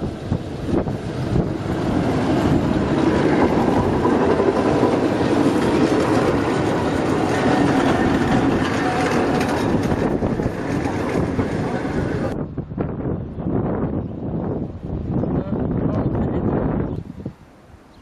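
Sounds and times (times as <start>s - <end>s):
tram wheels rolling on rails: 0.0s - 12.4s.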